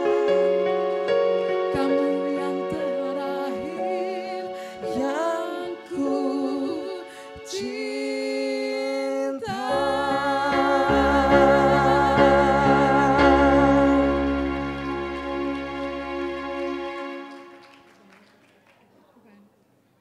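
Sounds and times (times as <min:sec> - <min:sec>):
man and woman singing duet: 0:00.0 - 0:01.0, 0:01.7 - 0:14.6
electronic keyboard: 0:00.0 - 0:07.2, 0:09.7 - 0:17.8.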